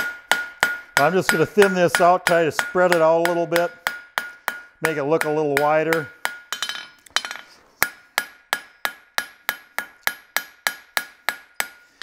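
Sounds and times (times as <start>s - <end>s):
hammer striking steel on anvil: 0.0s - 12.0s.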